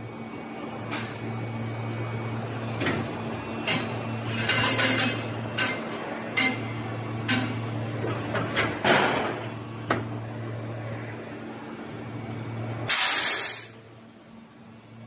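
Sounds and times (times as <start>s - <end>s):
hiss-like rush: 12.9s - 13.8s.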